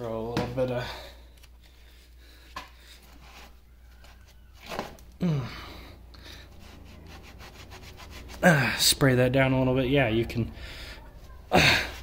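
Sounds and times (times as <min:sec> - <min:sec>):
person grunting: 0:05.2 - 0:05.8, 0:11.5 - 0:12.0.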